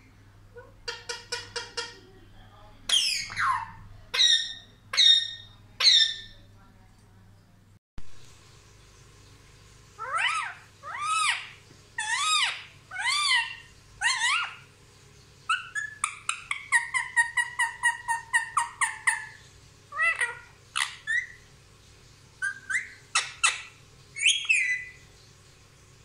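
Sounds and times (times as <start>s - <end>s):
parrot calling: 0.5s - 2.0s, 2.9s - 6.4s, 10.0s - 14.7s, 15.5s - 21.4s, 22.4s - 25.0s
parrot squawks: 0.6s - 2.0s, 2.9s - 6.3s, 10.0s - 14.7s, 15.5s - 21.4s, 22.4s - 25.0s.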